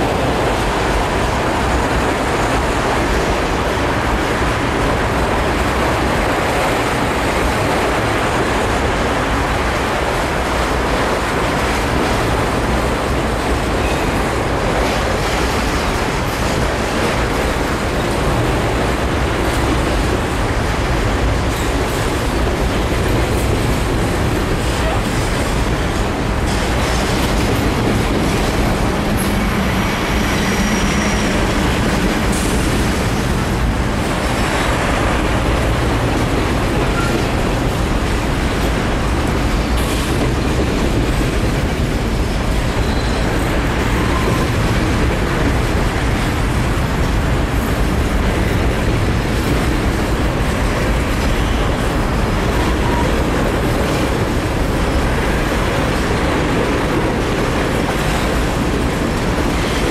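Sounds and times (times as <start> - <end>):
freight train rolling over bridge: 0.0 - 59.9.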